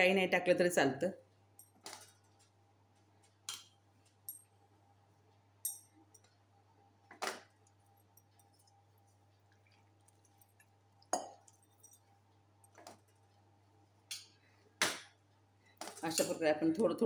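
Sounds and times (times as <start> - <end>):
hand mixing dough: 6.4 - 14.4
clink against glass bowl: 11.1 - 12.0.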